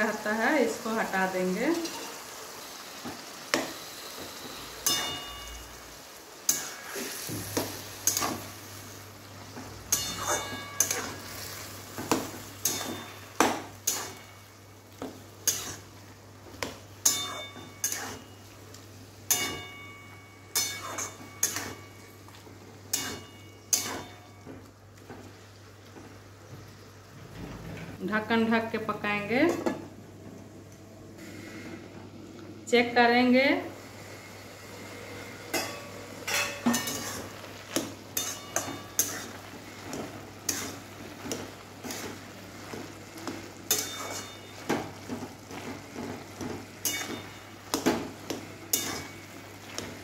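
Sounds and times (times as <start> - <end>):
metal spatula scraping a pan: 9.9 - 11.7, 15.4 - 15.9, 17.0 - 18.4, 20.5 - 21.9, 22.9 - 24.2, 35.5 - 42.8, 43.6 - 45.7, 46.8 - 49.2.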